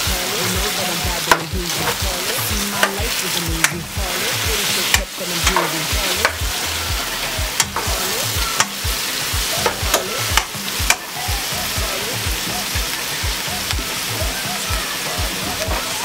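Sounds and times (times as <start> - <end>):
vegetables sizzling in hot oil: 0.0 - 16.0
utensil knocking against pot: 7.6 - 8.0.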